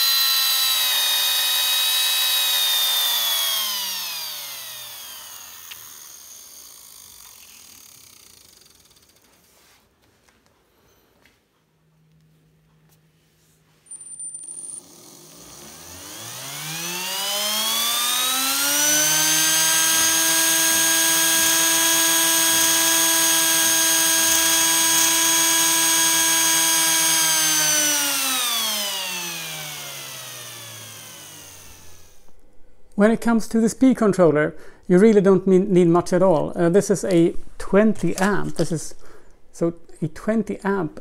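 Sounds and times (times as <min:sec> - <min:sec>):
electric motor whine: 0:00.0 - 0:09.0, 0:14.8 - 0:32.4.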